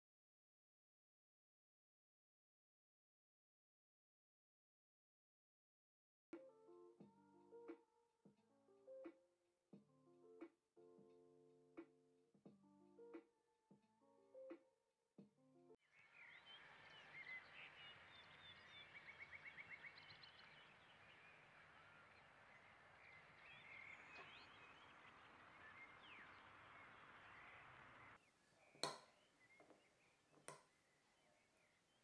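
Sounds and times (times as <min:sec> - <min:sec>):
bird trill: 0:15.9 - 0:32.0
birds chirping: 0:15.9 - 0:32.0
soft outdoor hiss: 0:15.9 - 0:32.0.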